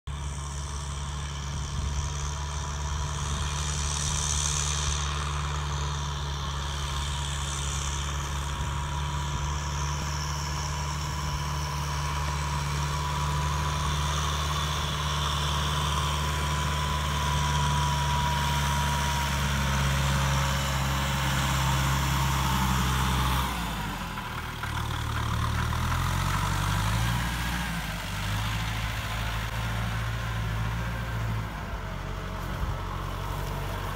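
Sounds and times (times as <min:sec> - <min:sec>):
tractor diesel engine under load: 0:00.1 - 0:33.9.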